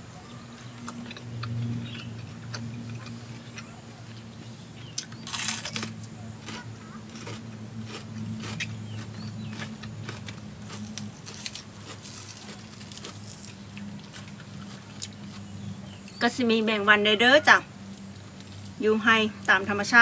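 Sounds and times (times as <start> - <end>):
steady low hum: 0.0 - 20.0
crunchy bites and chewing: 0.3 - 16.2.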